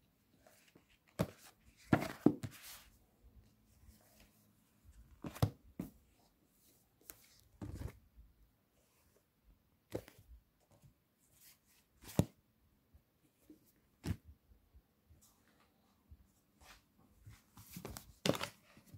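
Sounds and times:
books knocking on a desk: 1.2 - 2.6.

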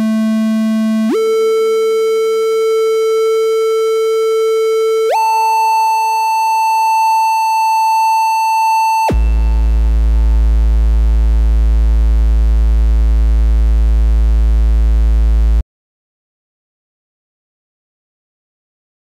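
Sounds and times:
electronic oscillator tone: 0.0 - 10.5.

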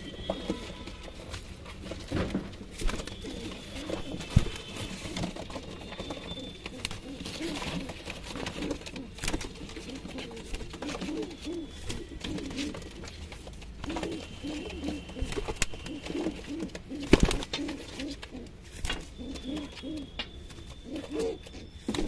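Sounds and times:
pigeons cooing: 2.9 - 13.1, 13.8 - 22.0.

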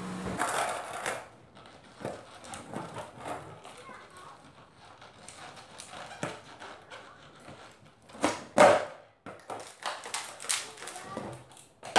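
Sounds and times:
skateboard clattering on concrete: 0.4 - 11.9.

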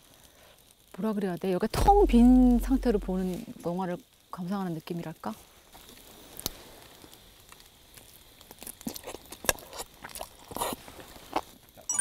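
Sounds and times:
faint steady hiss: 0.0 - 12.0
chewing: 8.6 - 11.6.

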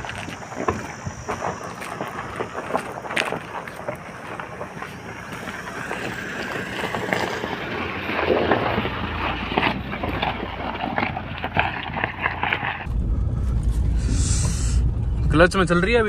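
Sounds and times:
wind buffeting microphone: 0.0 - 11.4
footsteps on gravel: 0.0 - 12.9
diesel engine running: 0.0 - 16.0.

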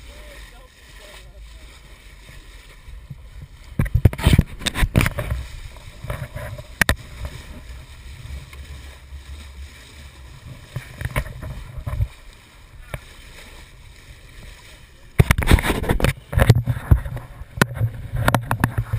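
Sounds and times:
wind buffeting microphone: 2.2 - 13.1.

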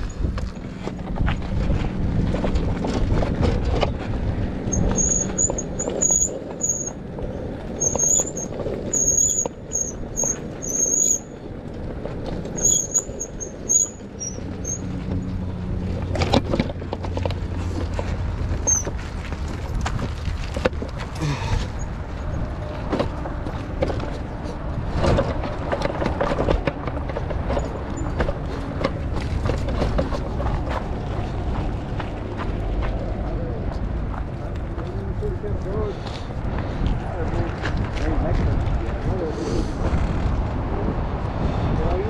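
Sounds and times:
bike disc brakes squealing: 4.7 - 7.0, 7.7 - 11.4, 12.5 - 15.0, 18.6 - 19.0.

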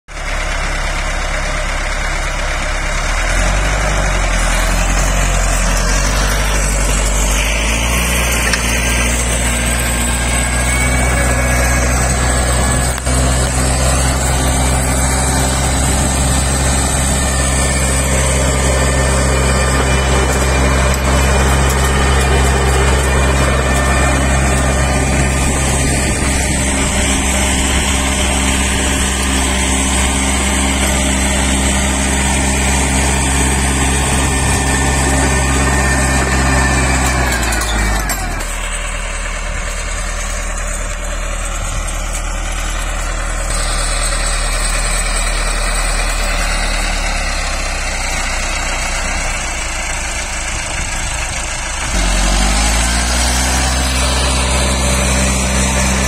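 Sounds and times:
tractor diesel engine under load: 0.0 - 56.0.

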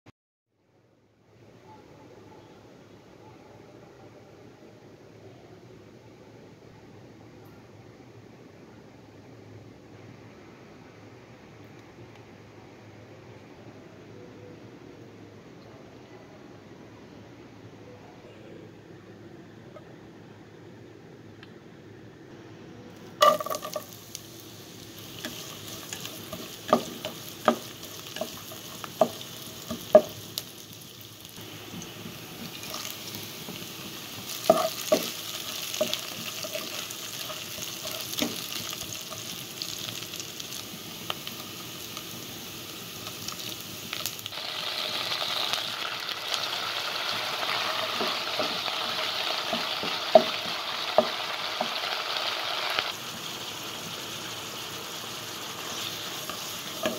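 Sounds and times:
onions sizzling in oil: 23.1 - 56.9.

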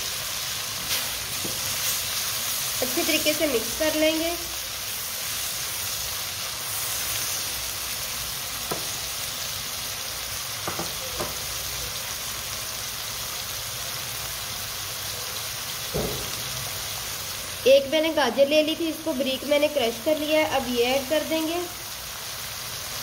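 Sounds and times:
chicken sizzling in wok: 0.0 - 23.0
spatula knocking: 10.6 - 11.4.

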